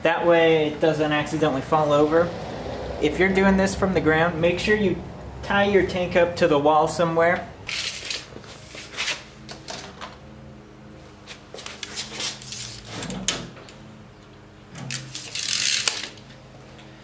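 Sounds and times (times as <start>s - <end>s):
tape measure clicking and rattling: 7.7s - 8.3s, 11.6s - 13.0s, 14.8s - 16.2s
shoe scuffs on concrete floor: 7.8s - 9.4s, 11.1s - 13.0s.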